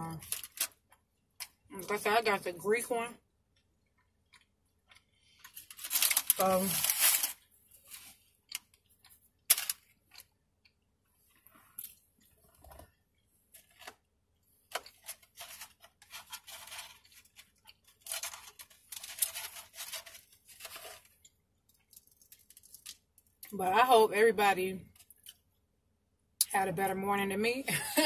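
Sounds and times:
paper wrapper crinkling: 0:00.2 - 0:00.8, 0:05.4 - 0:08.8, 0:14.8 - 0:21.2, 0:21.8 - 0:23.2.

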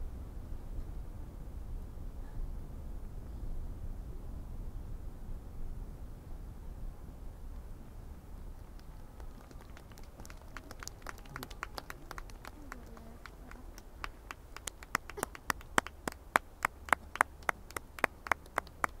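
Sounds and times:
spectators clapping: 0:08.6 - 0:19.0.

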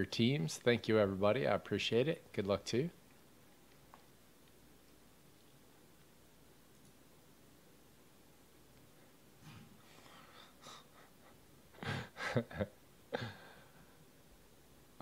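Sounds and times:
man laughing softly: 0:10.6 - 0:13.9.

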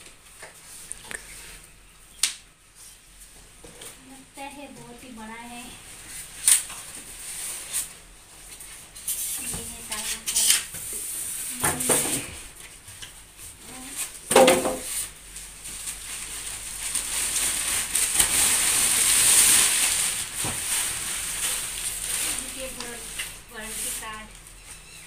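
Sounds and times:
plastic packaging crinkling: 0:14.6 - 0:24.9.

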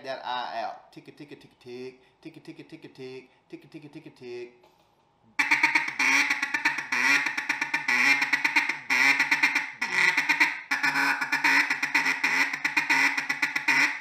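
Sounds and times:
duck call clucking chatter: 0:05.4 - 0:14.0.

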